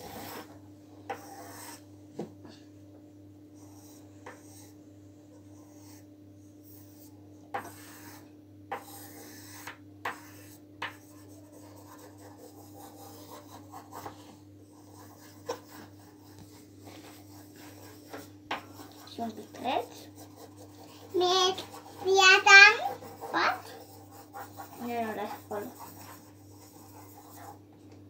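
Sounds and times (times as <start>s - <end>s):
pencil scratching on paper: 0.0s - 1.8s, 3.6s - 4.8s, 5.4s - 27.6s
faint steady hum: 0.0s - 28.0s.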